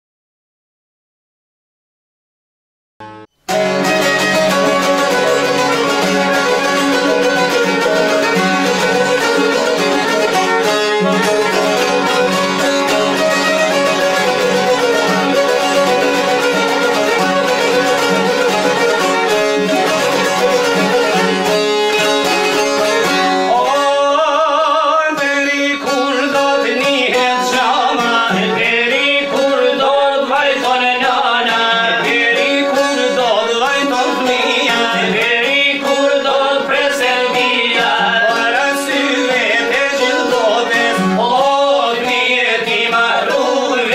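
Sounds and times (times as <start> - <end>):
folk violin and lutes playing: 3.5 - 43.9
man singing: 23.4 - 43.9.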